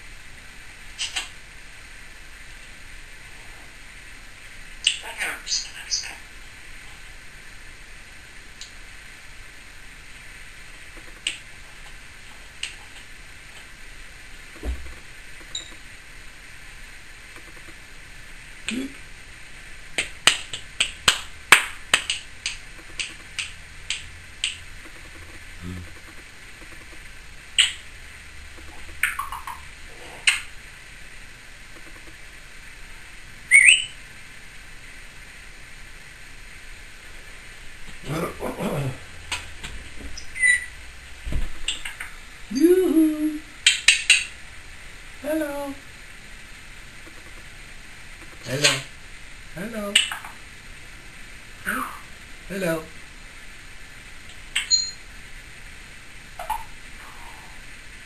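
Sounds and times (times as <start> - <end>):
parrot clicking: 17.4 - 17.8, 20.0 - 27.0, 27.6 - 27.8, 30.2 - 30.5, 31.8 - 32.2, 47.0 - 47.5, 48.2 - 48.8
parrot sharp clicks: 27.6 - 27.8
parrot falling whistle: 33.5 - 34.0
parrot whistle: 33.5 - 34.0, 40.2 - 40.7.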